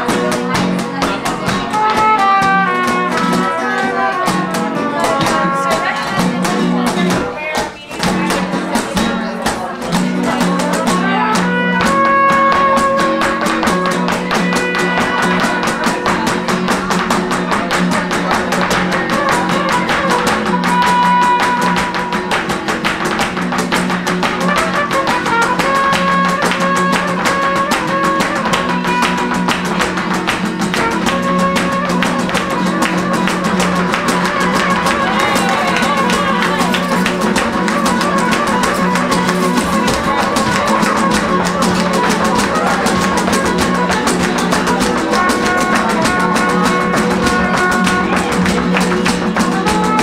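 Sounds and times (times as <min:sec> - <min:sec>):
nylon-string acoustic guitars: 0:00.0 - 0:50.0
percussion: 0:00.0 - 0:50.0
dancer's footwork strikes: 0:11.5 - 0:50.0.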